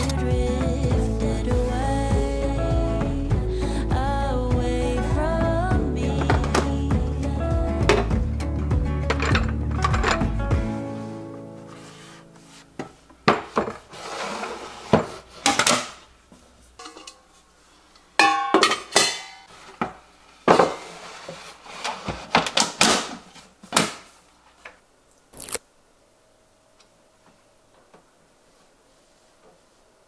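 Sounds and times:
containers clattering and knocking: 9.0s - 10.3s.

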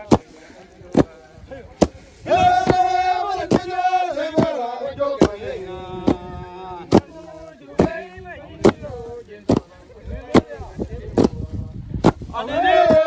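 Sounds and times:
men chanting in unison: 0.0s - 10.9s, 12.3s - 13.0s
wooden beaters thudding ground: 0.0s - 13.0s.

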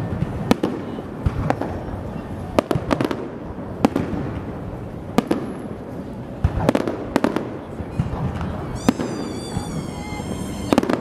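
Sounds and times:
fireworks bursting with sharp bangs: 0.0s - 11.0s.

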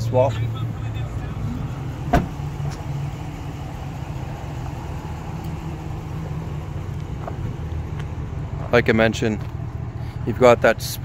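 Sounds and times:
engine idling: 0.0s - 11.0s
truck door slamming: 2.0s - 2.8s.

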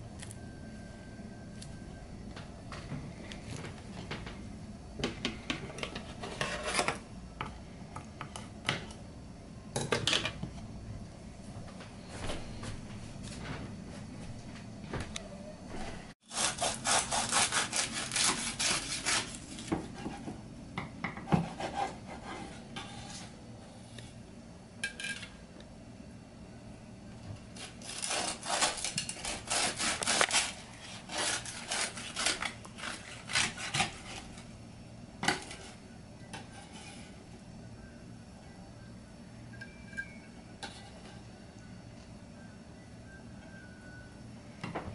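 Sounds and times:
knife sawing through crisp meat: 16.2s - 19.4s, 27.6s - 34.3s.

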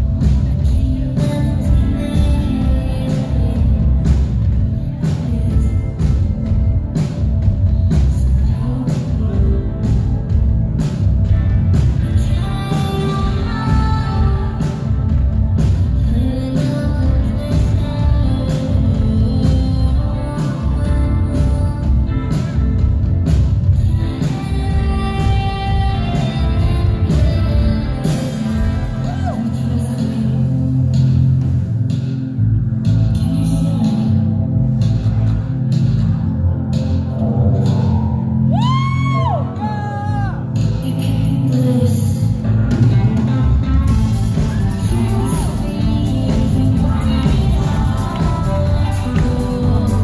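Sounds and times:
woman singing into a microphone: 0.0s - 7.0s, 7.7s - 10.7s, 11.9s - 23.0s, 23.7s - 31.5s, 33.1s - 34.8s, 39.0s - 43.2s, 43.9s - 50.0s
bass-heavy backing: 0.0s - 50.0s
drums: 0.0s - 50.0s
keyboard: 0.0s - 50.0s
live band music: 0.0s - 50.0s
person singing: 12.0s - 22.8s, 37.5s - 50.0s.

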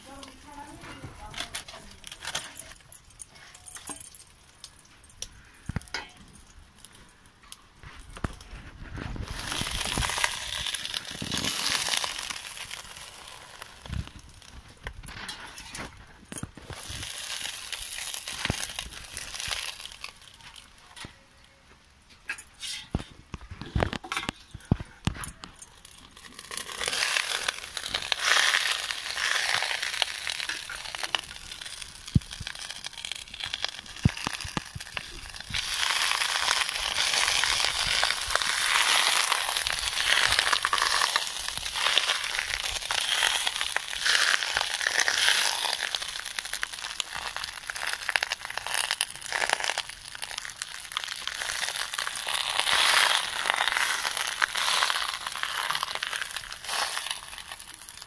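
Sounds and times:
leaves crinkling: 8.3s - 15.8s, 16.4s - 21.5s, 25.7s - 58.0s.

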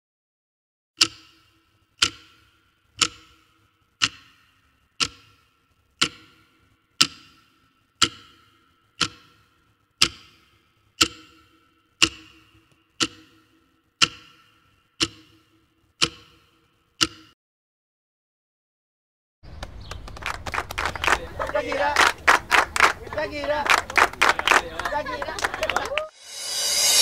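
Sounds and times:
clock ticking: 1.0s - 17.4s.

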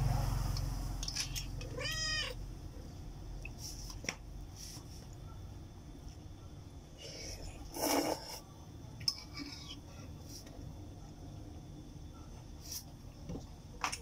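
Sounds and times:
cat meowing: 1.6s - 2.4s.

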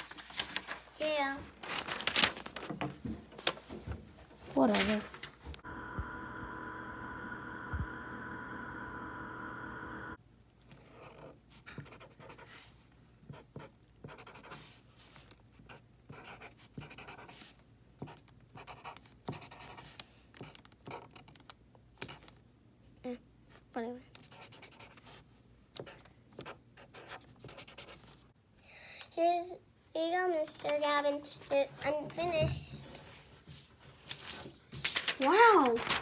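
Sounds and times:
steady tonal hum: 5.6s - 10.2s
marker scratching on paper: 10.8s - 21.2s, 24.2s - 25.2s, 25.8s - 28.1s.

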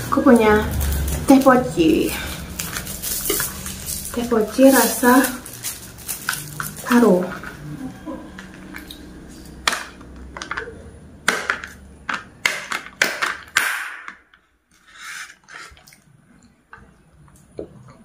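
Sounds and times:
sipping through a straw: 14.8s - 16.0s.

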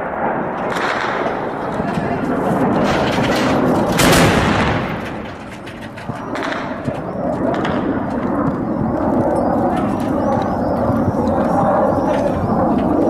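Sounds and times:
anti-aircraft gun burst echo: 0.0s - 13.0s
steady rushing noise: 0.0s - 13.0s
sharp gunshot cracks: 0.6s - 1.6s, 3.8s - 5.2s.

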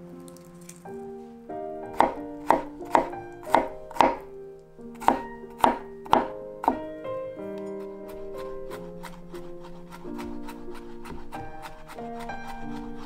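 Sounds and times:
knife chopping on cutting board: 1.9s - 4.3s, 5.0s - 6.8s, 8.0s - 13.0s.

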